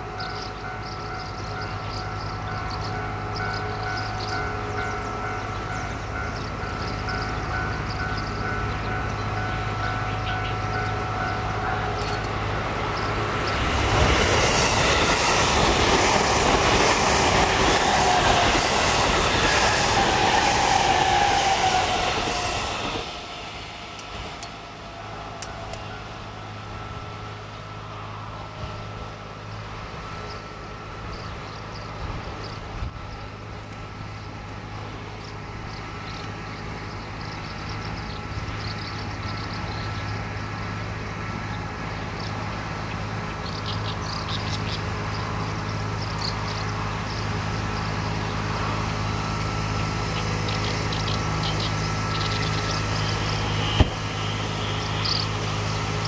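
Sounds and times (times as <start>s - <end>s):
low mechanical hum: 23.6s - 56.0s.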